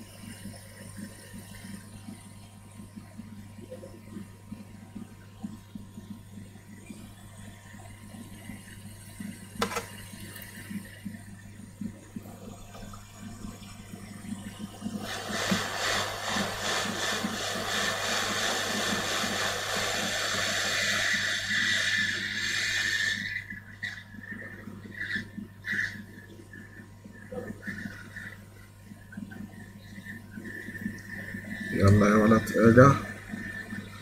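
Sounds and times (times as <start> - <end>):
low electrical hum: 0.0 - 34.0
hot air blower hiss: 14.9 - 24.0.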